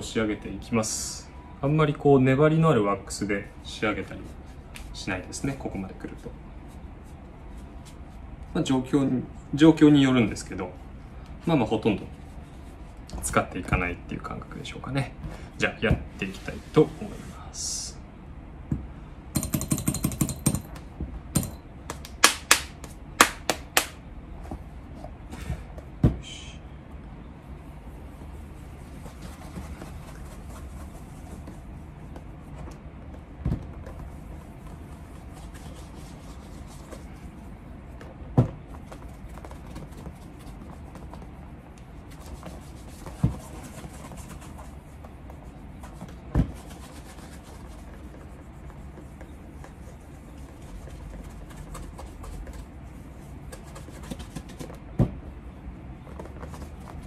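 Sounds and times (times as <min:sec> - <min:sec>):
cloth rubbing leather shoe: 0:27.6 - 0:57.0.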